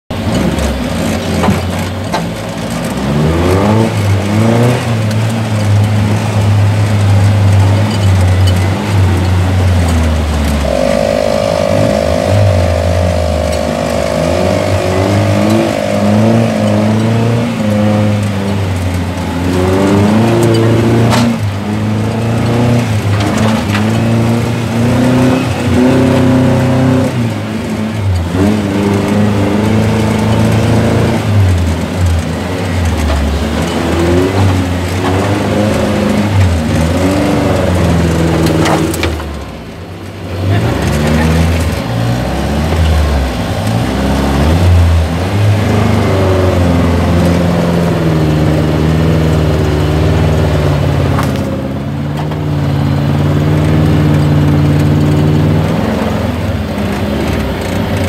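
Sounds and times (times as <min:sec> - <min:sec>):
off-road vehicle engine revving: 0:00.0 - 0:58.0
steady higher whine: 0:06.0 - 0:27.6.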